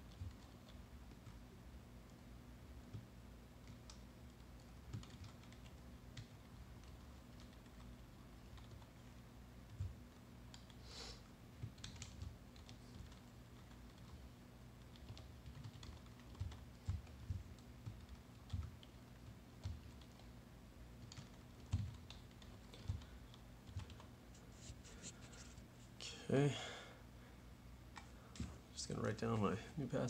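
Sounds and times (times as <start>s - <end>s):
typing on keyboard: 0.0s - 1.4s, 2.9s - 10.8s, 11.6s - 20.3s, 21.0s - 24.1s
faint low hum: 0.0s - 30.0s.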